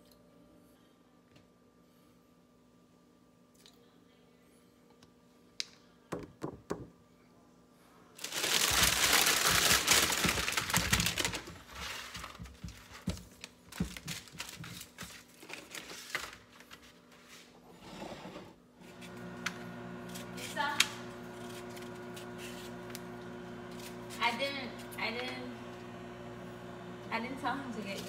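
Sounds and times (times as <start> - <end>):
packaging crinkling: 8.2 - 17.0.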